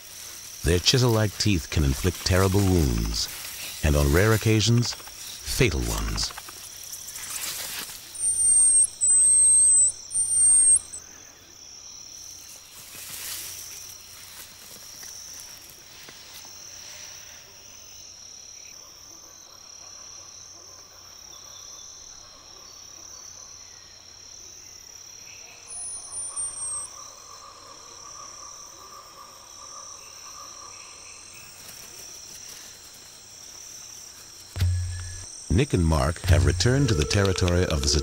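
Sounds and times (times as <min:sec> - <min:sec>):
frogs croaking: 0:00.0 - 0:38.0
insects droning: 0:00.0 - 0:38.0.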